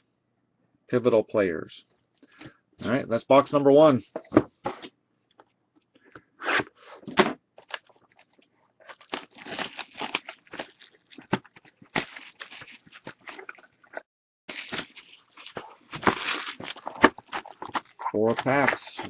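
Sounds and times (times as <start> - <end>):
plastic wrap and card tearing: 7.6 - 19.0.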